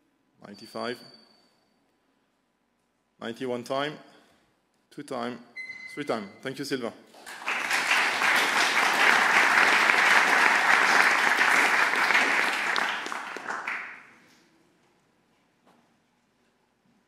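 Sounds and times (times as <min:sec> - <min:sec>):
audience applauding: 0:07.2 - 0:14.2.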